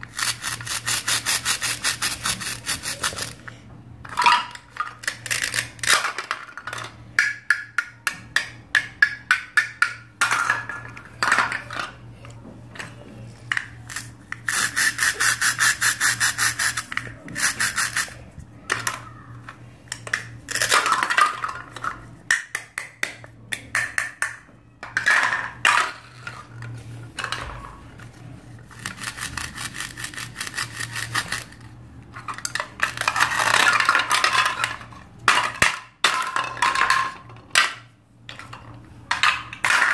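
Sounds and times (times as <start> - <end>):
toy knife sawing plastic: 0.0 - 3.4, 13.9 - 18.2, 28.7 - 31.6
plastic pieces clacking on board: 4.1 - 12.0, 19.9 - 26.4, 28.7 - 39.9.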